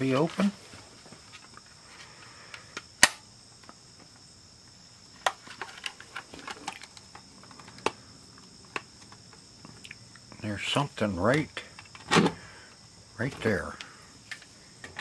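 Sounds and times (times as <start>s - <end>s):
faint high hiss: 0.0s - 15.0s
plastic case clicking and rattling: 5.2s - 8.0s.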